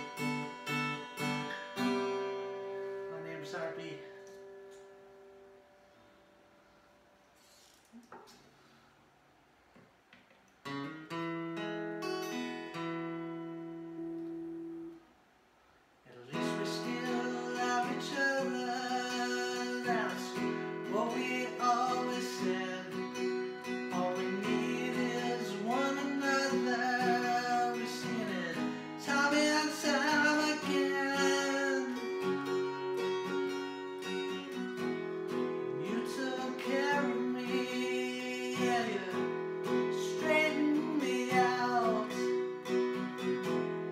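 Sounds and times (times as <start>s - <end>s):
acoustic guitar strumming: 0.0s - 8.8s, 10.6s - 15.3s, 16.1s - 43.9s
man singing: 16.1s - 32.8s, 35.7s - 42.6s.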